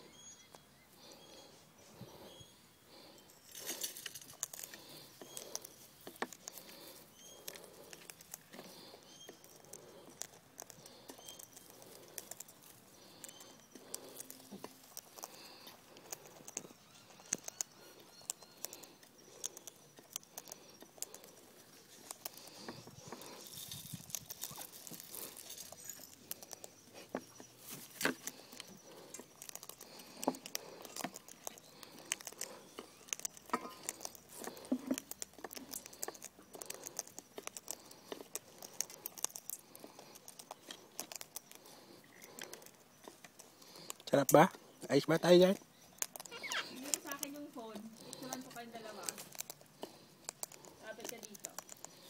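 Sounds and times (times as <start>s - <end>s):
beaks tapping seed on metal pan: 33.2s - 36.3s.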